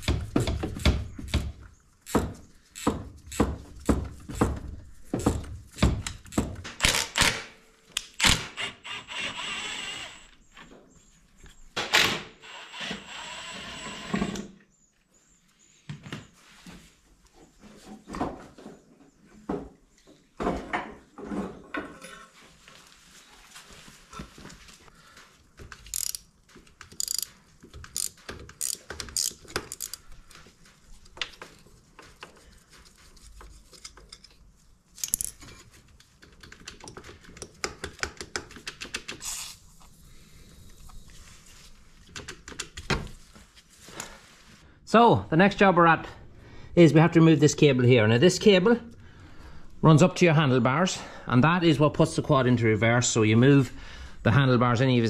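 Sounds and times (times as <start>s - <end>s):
hand tools and bolts clinking: 25.8s - 30.0s, 33.4s - 36.0s
ratchet clicking: 25.9s - 26.2s, 26.9s - 27.3s, 27.9s - 30.0s.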